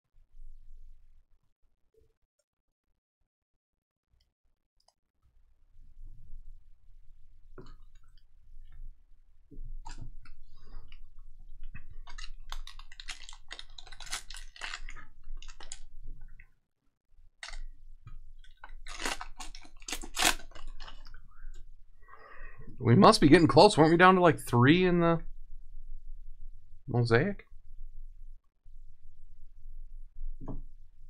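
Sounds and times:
foil wrapper crinkling and tearing: 11.9s - 16.0s, 17.4s - 17.7s, 18.4s - 21.2s.

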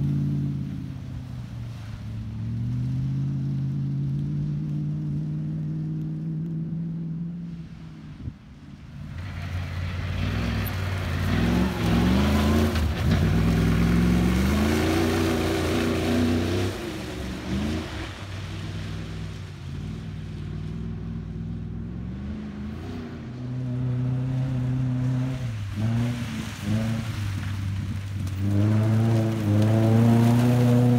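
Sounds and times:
another vehicle engine: 0.0s - 30.9s
racing car engine revving: 9.2s - 30.9s.

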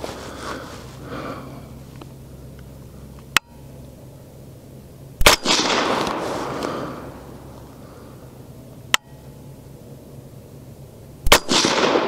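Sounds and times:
suppressed rifle shot: 5.2s - 7.2s, 11.2s - 12.0s.

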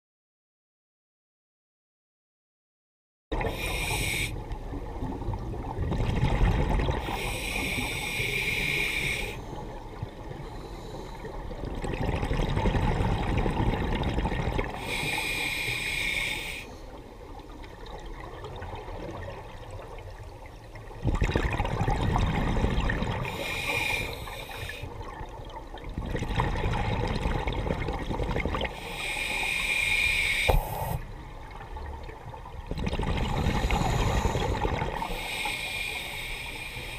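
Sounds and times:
regulator inhale hiss: 3.4s - 4.4s, 7.0s - 9.6s, 10.4s - 11.4s, 14.8s - 16.9s, 23.3s - 25.0s, 28.7s - 31.1s, 33.3s - 36.9s.

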